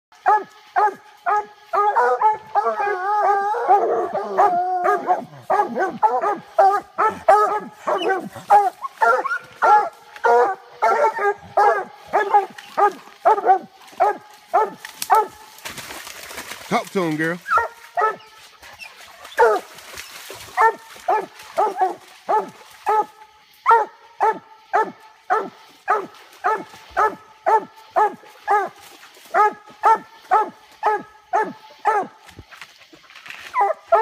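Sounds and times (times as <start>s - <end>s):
hounds barking and baying: 0.2s - 15.6s, 16.7s - 32.2s, 33.4s - 34.0s.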